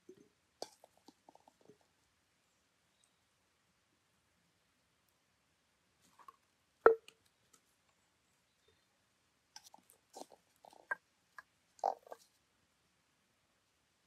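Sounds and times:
food pressed into a glass jar: 0.1s - 1.8s, 9.6s - 12.2s.

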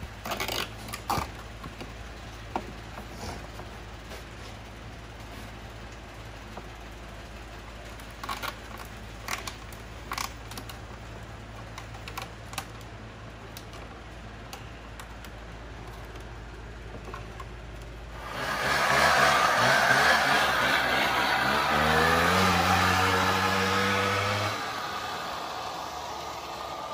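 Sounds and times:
steady low hum: 0.0s - 26.9s
loud noise: 18.2s - 26.9s.

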